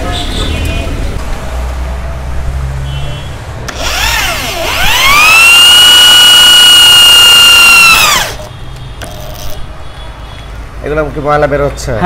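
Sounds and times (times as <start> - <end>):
electric drill whine: 3.7 - 8.5.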